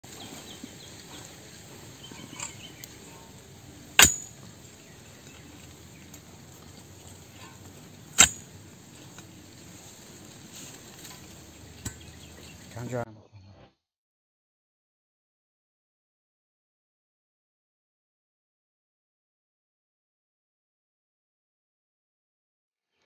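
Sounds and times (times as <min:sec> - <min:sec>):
metal tool hitting stony earth: 0:02.1 - 0:03.2, 0:03.8 - 0:04.6, 0:05.3 - 0:09.3, 0:11.0 - 0:12.4.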